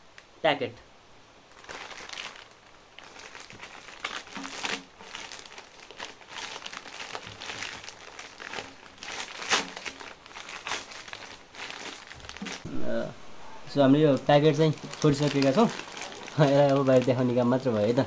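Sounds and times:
plastic bag crinkling: 0:01.5 - 0:12.7, 0:13.7 - 0:18.0.

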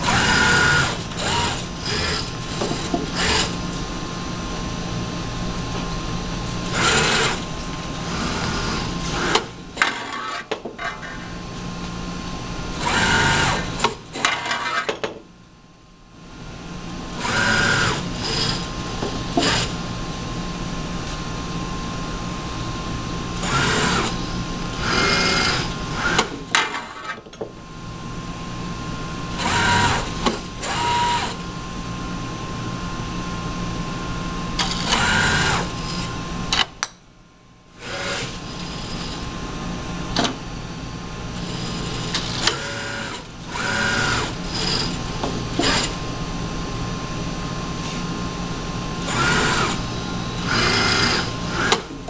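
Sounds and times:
robot arm servo motors whirring: 0:00.0 - 0:03.6, 0:06.7 - 0:07.4, 0:12.8 - 0:13.7, 0:17.2 - 0:18.7, 0:23.4 - 0:24.2, 0:24.8 - 0:27.1, 0:29.4 - 0:31.4, 0:34.6 - 0:36.1, 0:37.8 - 0:39.2, 0:41.5 - 0:45.0, 0:49.1 - 0:49.8, 0:50.4 - 0:51.9
electrical hum with high whine: 0:00.0 - 0:52.0.

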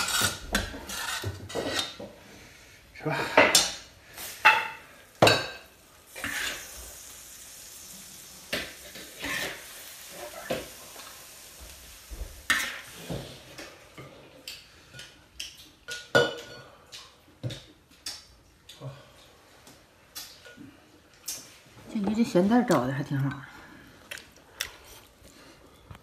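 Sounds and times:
food sizzling: 0:00.0 - 0:02.0, 0:03.5 - 0:16.6
metal spatula scraping a wok: 0:00.0 - 0:02.0, 0:06.1 - 0:06.8, 0:09.0 - 0:10.5.

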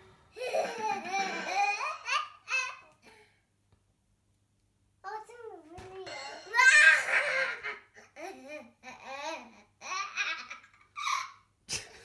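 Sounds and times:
young child laughing: 0:00.4 - 0:03.0.

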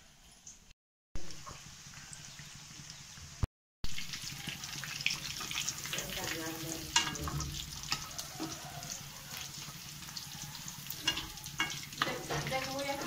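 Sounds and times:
food deep-frying in oil: 0:00.4 - 0:13.0
spoon knocking against pan: 0:11.0 - 0:13.0.

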